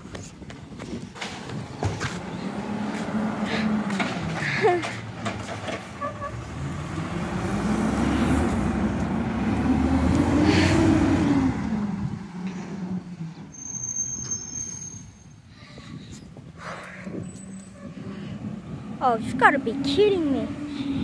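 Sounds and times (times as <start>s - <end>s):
diesel truck engine revving: 1.4s - 13.5s, 18.3s - 21.0s.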